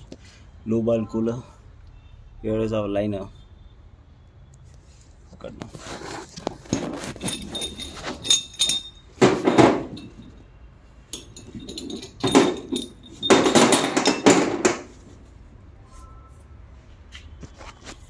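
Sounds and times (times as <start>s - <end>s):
metal rubbing and scraping: 5.6s - 10.4s
metal parts clinking: 6.6s - 15.0s.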